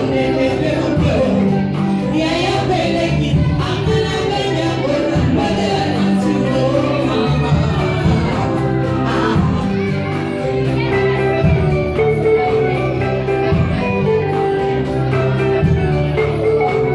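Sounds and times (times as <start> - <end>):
women singing into microphones: 0.0 - 9.9
bass line: 0.0 - 16.9
live band playing: 0.0 - 16.9.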